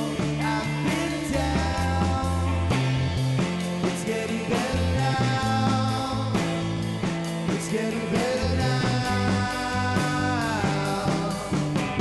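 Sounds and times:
man singing into microphone: 0.0 - 2.6, 3.9 - 6.4, 7.5 - 11.6
electric bass: 0.0 - 12.0
electric guitar: 0.0 - 12.0.

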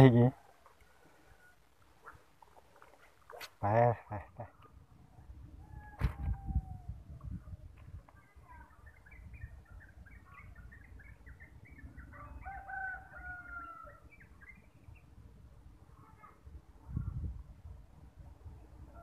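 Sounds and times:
rooster crowing faintly: 5.6 - 7.0.

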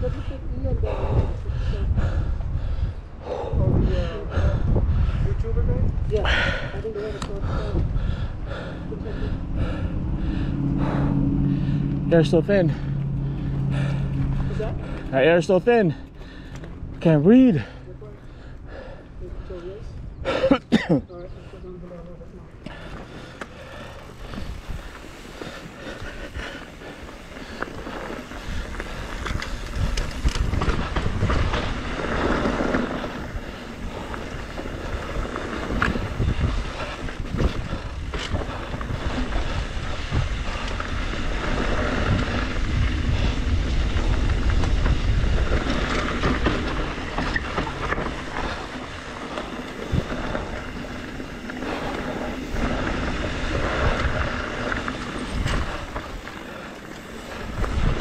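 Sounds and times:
wind buffeting microphone: 0.0 - 58.0
tyres rolling over dirt and rock: 22.6 - 58.0
bike knocks and rattles: 27.9 - 33.5.

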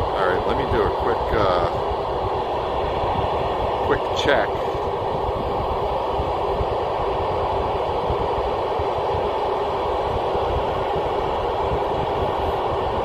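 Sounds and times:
radio static hiss: 0.0 - 7.3
wind buffeting microphone: 0.0 - 13.0.

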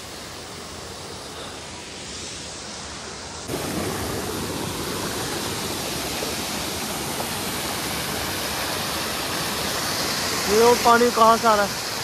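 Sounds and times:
water falling and rushing: 0.0 - 12.0.

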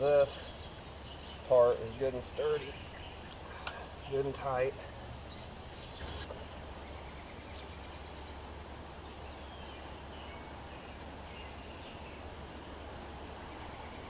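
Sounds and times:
low steady rumble: 0.0 - 14.0
faint bird chirps: 0.3 - 8.4, 13.4 - 14.0.

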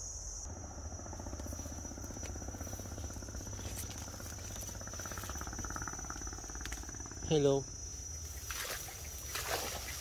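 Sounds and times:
insects shrilling: 0.0 - 10.0
insect clicks: 3.4 - 7.2.

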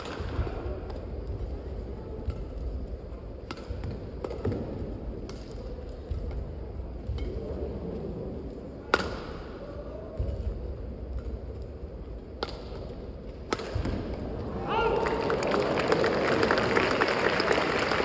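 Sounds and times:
racket striking shuttlecock: 2.2 - 7.4, 8.8 - 9.5, 12.2 - 14.2.

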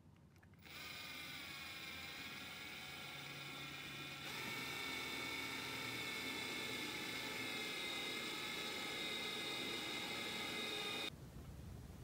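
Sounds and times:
cordless drill whirring: 0.6 - 11.1.

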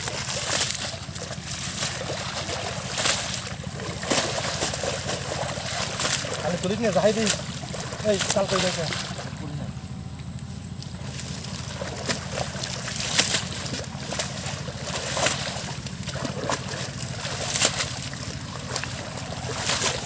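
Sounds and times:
water sloshing and splashing: 0.0 - 20.0.

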